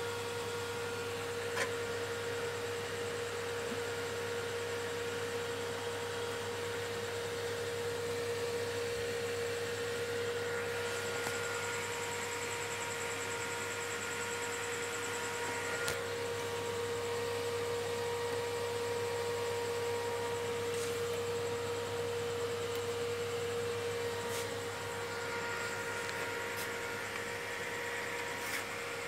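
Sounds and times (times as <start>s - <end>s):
electrical hum: 0.0s - 29.0s.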